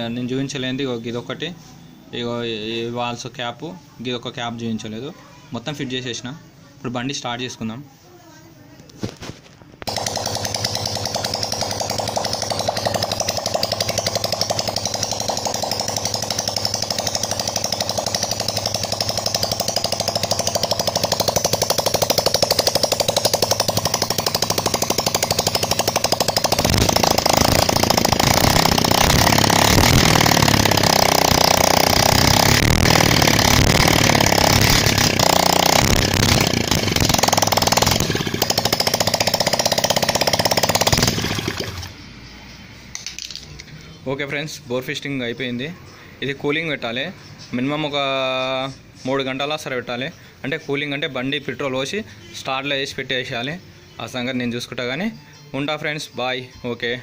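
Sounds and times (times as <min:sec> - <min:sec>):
motorcycle engine running: 0:09.8 - 0:42.3.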